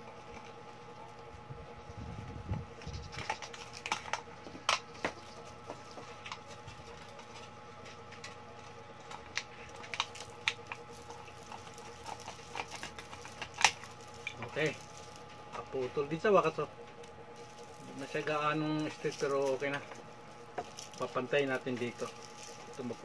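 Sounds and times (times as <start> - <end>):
aluminium can clicking and crinkling: 9.1 - 15.3.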